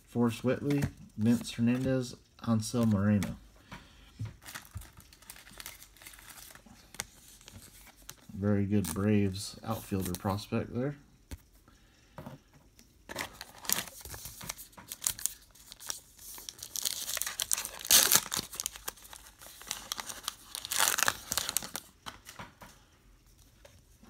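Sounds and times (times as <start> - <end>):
foil wrapper crinkling and tearing: 4.4 - 9.0, 13.1 - 21.9.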